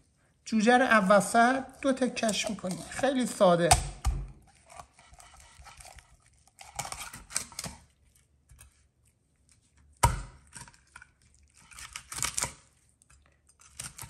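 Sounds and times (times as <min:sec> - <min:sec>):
knife crunching through bone: 0:01.8 - 0:07.9, 0:09.8 - 0:12.8, 0:13.5 - 0:14.0.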